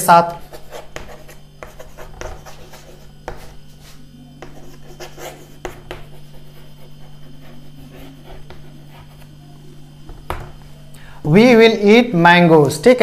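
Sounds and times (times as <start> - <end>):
chalk scratching on chalkboard: 0.3 - 10.6.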